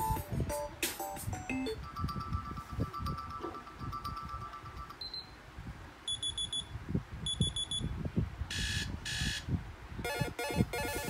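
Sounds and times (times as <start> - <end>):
high beeps from phone loudspeaker: 6.1 - 6.7, 7.3 - 7.8
rhythmic electronic alarm tone: 10.1 - 11.0.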